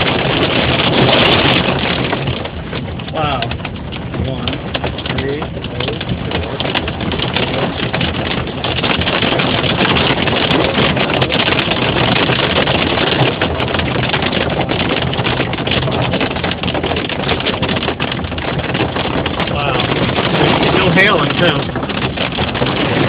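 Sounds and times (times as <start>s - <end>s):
rain and hail on car roof: 0.0s - 23.0s.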